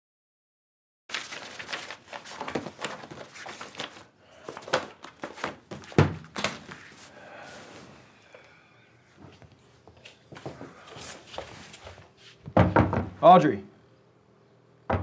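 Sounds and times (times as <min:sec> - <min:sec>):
paper rustling: 0:01.1 - 0:07.9.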